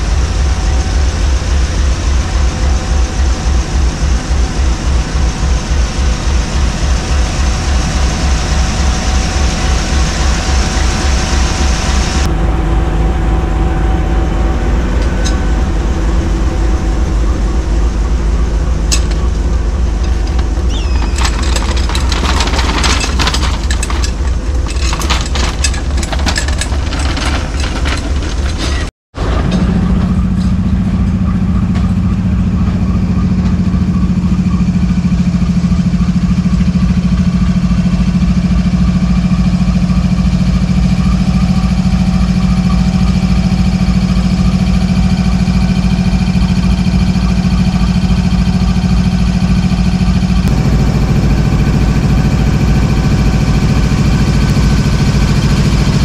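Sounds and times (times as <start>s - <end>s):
locomotive engine idling: 0.0s - 56.0s
irregular clattering: 20.0s - 28.9s.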